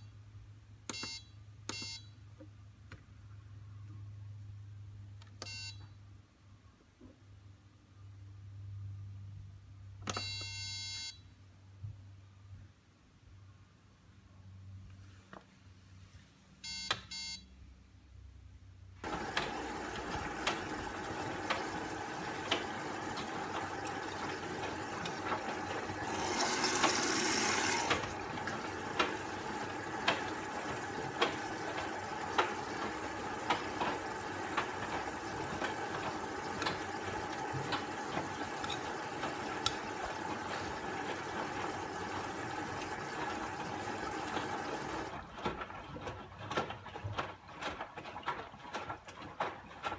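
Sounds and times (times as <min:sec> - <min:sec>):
control panel beep: 0:00.9 - 0:02.1, 0:05.4 - 0:05.8, 0:10.1 - 0:11.2, 0:16.6 - 0:17.4
washing machine humming: 0:19.0 - 0:49.9.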